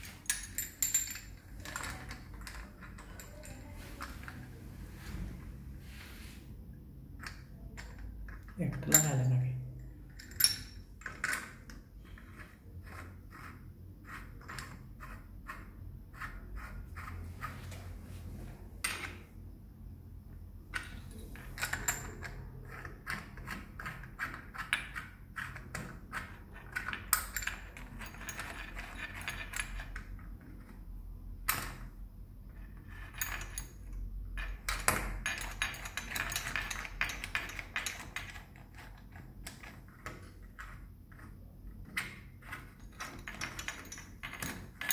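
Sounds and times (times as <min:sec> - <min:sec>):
metal clinks and taps: 0:00.0 - 0:04.4, 0:07.2 - 0:12.4, 0:20.7 - 0:25.0, 0:32.9 - 0:44.9.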